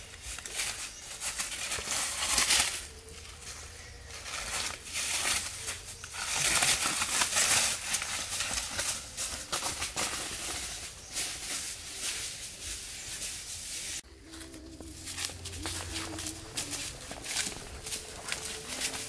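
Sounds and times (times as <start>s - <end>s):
footsteps in dry leaves: 0.0s - 19.0s.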